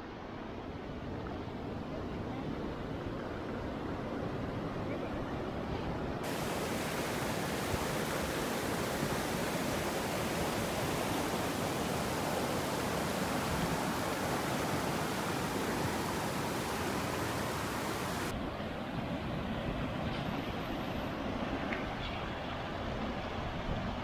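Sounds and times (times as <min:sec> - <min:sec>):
river rushing over rocks: 0:06.2 - 0:18.4.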